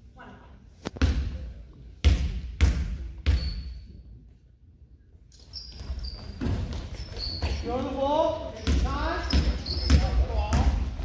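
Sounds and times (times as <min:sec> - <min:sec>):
sneaker squeaks: 0:03.2 - 0:04.1, 0:05.3 - 0:10.9
basketball bouncing on wooden floor: 0:05.7 - 0:07.9, 0:08.6 - 0:11.0.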